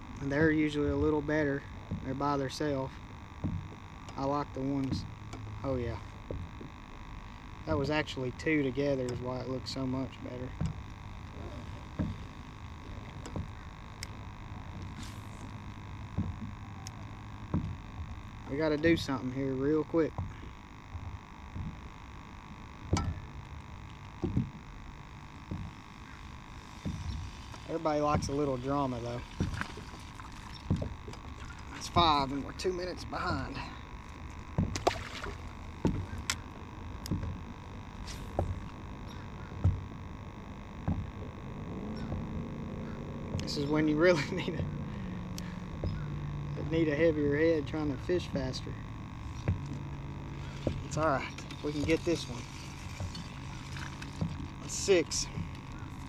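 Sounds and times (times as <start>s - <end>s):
low hum and rumble: 0.0s - 56.0s
water slapping against boat hull: 25.5s - 33.2s, 34.4s - 37.6s.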